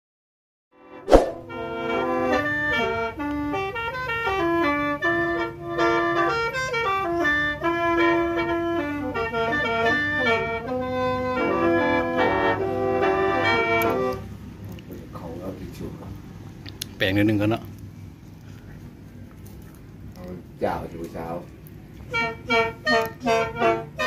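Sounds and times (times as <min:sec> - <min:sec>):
free-reed mouth organ melody: 0:01.5 - 0:14.6, 0:21.6 - 0:24.0.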